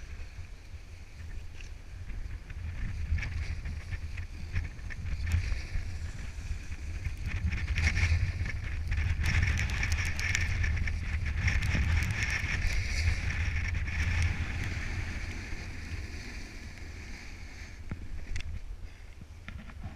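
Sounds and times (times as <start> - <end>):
wind rumbling on microphone: 0.0 - 19.9
snowboard hissing over snow: 12.5 - 19.0.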